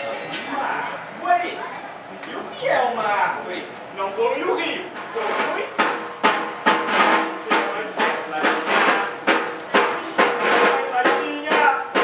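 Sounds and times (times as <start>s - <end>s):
drum beating: 4.9s - 12.0s.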